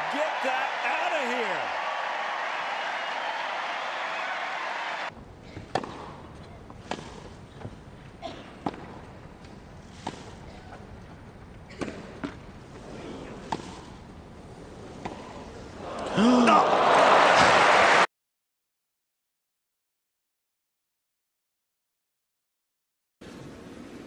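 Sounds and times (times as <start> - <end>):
crowd cheering and applauding: 0.0 - 5.1, 15.8 - 18.1
racket striking tennis ball: 5.6 - 6.2, 6.8 - 7.3
tennis ball bouncing: 5.6 - 6.2, 6.8 - 7.3.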